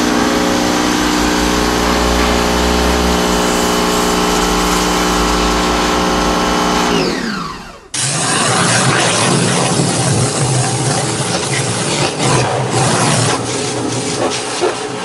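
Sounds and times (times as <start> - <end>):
water spray hissing: 0.0 - 6.9
pressure washer motor humming: 0.0 - 11.3.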